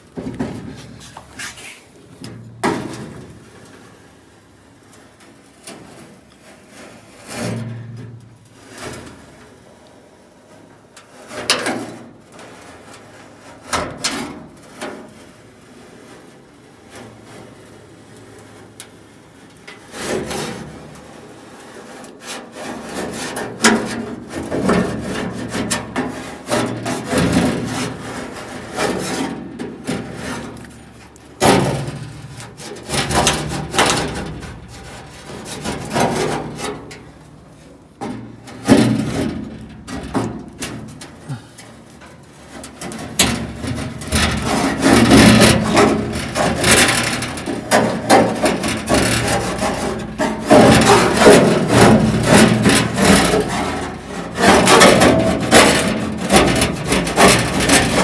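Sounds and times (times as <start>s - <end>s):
scraper scraping sheet metal: 0.4s - 1.9s, 21.8s - 41.5s, 42.4s - 58.0s.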